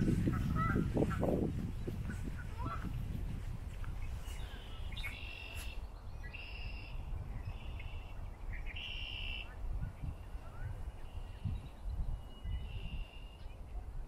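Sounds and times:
high-pitched bird calls: 0.0 - 10.4.

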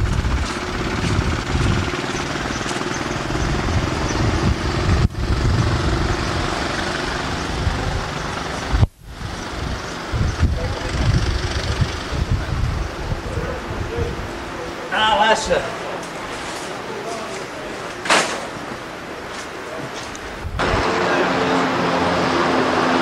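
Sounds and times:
engine drone with chopping rhythm: 0.0 - 12.6, 20.5 - 23.0.

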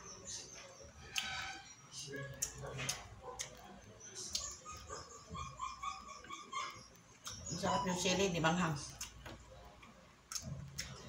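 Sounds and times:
mouth and lip clicks: 10.3 - 11.0.

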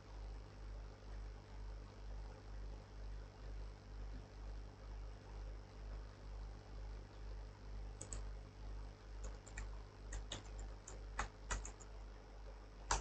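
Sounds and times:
keyboard typing clicks: 8.0 - 8.3, 9.2 - 11.9.

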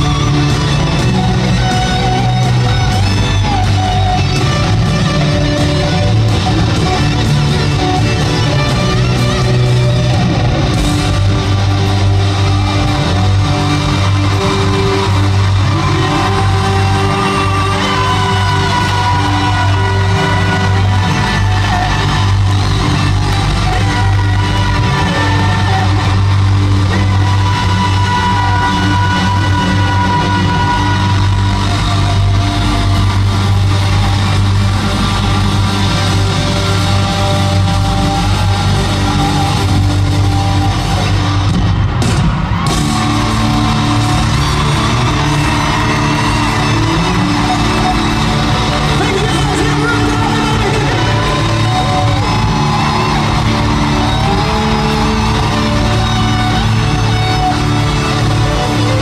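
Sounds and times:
live pop-rock band playing: 0.0 - 59.0.

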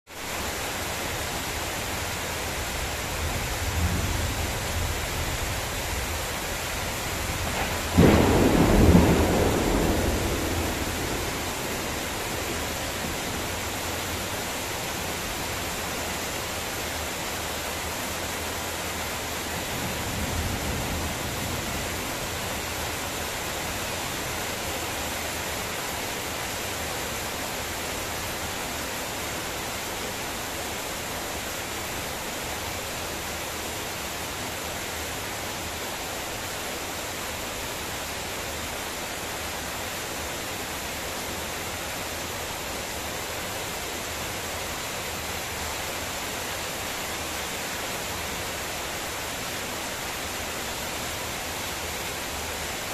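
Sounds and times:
heavy rain on trees: 0.1 - 52.9
low thunder rumble: 7.2 - 13.8.

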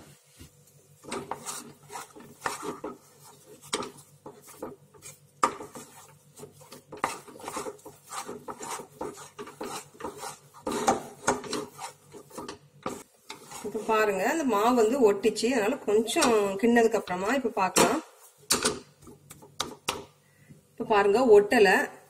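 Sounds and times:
wooden spatula scraping dough in pan: 0.0 - 16.5.

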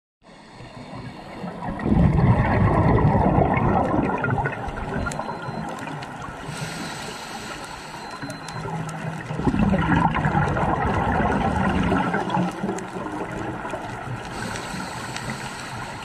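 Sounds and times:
underwater bubbles gurgling: 0.4 - 16.0
faint hiss: 6.5 - 8.5, 14.3 - 16.0.

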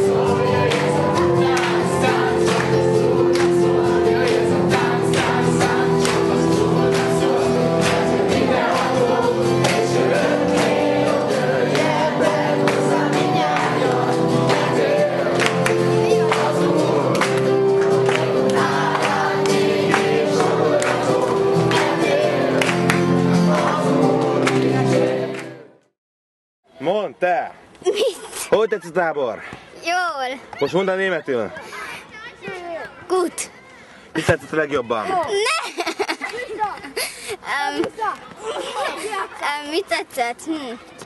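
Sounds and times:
children singing: 0.0 - 25.6
hand claps: 0.7 - 1.8, 2.5 - 2.7, 3.3 - 3.6, 5.1 - 6.2, 9.6 - 9.8, 12.6 - 12.8, 15.4 - 16.5, 17.1 - 21.1, 22.6 - 23.1.

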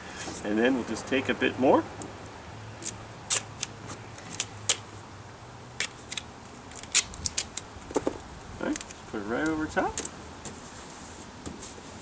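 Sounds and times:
duct tape ripping: 2.8 - 4.9, 5.8 - 10.2.

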